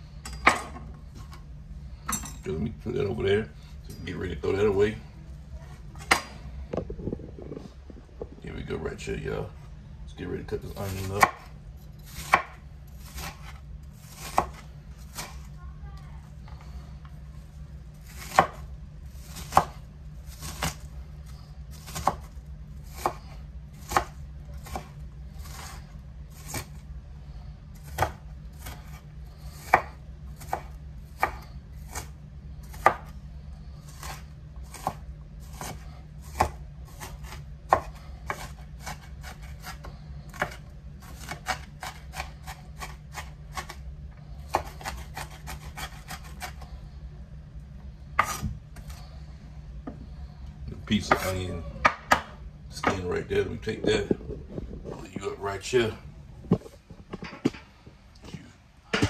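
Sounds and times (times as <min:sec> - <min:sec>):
knife chopping on wooden board: 0:10.9 - 0:11.5, 0:12.1 - 0:15.5, 0:18.1 - 0:18.7, 0:19.4 - 0:20.9, 0:21.7 - 0:25.8, 0:26.4 - 0:26.8, 0:27.8 - 0:29.0, 0:29.6 - 0:32.1, 0:32.7 - 0:33.1, 0:34.0 - 0:43.8, 0:44.5 - 0:46.6, 0:48.2 - 0:48.9, 0:51.0 - 0:53.0.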